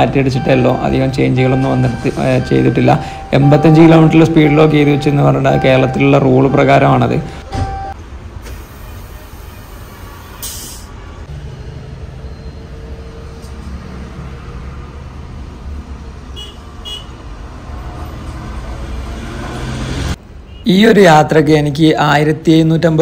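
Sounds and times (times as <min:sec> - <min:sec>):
bus engine idling: 0:00.0 - 0:11.3
high beeps: 0:00.2 - 0:08.0, 0:12.2 - 0:12.7
compressed air hiss: 0:10.4 - 0:11.0.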